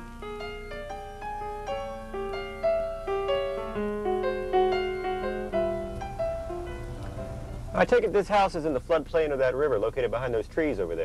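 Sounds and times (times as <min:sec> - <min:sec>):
keyboard background music: 0:00.0 - 0:08.2.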